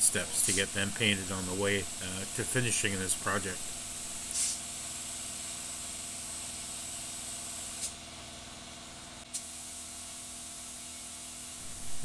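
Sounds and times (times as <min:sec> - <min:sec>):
paint sprayer hiss: 0:00.0 - 0:08.0, 0:09.2 - 0:12.0
sprayer motor hum: 0:00.0 - 0:08.0.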